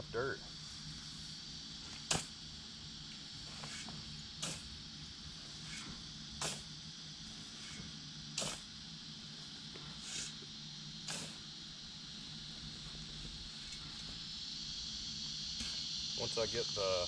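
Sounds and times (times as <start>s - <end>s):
high insect drone: 0.0s - 17.0s
shovel scraping into dry dirt: 1.8s - 2.3s, 3.4s - 4.8s, 5.4s - 6.7s, 7.4s - 8.7s, 9.9s - 10.4s, 11.1s - 11.4s.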